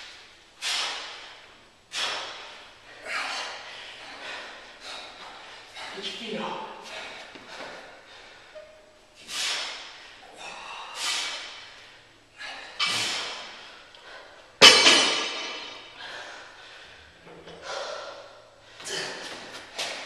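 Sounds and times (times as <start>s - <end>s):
hard breathy exhalations: 0.0s - 6.0s, 6.8s - 14.4s, 15.1s - 19.5s
barbell clanging on concrete: 14.6s - 15.9s.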